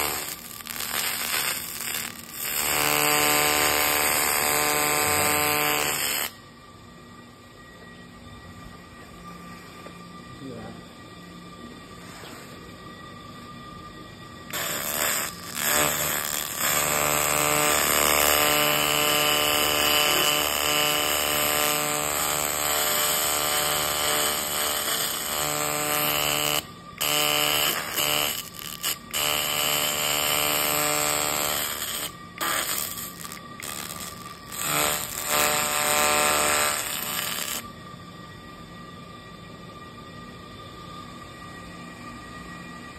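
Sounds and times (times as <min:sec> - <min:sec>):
laser cleaning buzz: 0:00.0 - 0:06.4, 0:14.4 - 0:37.7.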